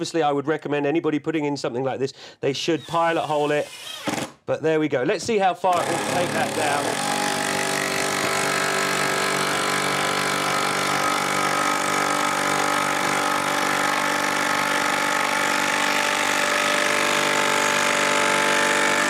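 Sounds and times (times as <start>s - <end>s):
impact driver driving screw into wood: 3.7s - 4.4s, 5.7s - 19.0s.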